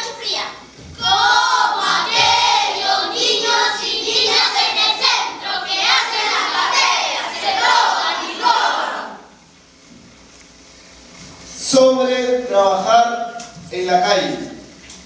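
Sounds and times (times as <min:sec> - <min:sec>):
group of young voices singing: 0:01.0 - 0:09.3.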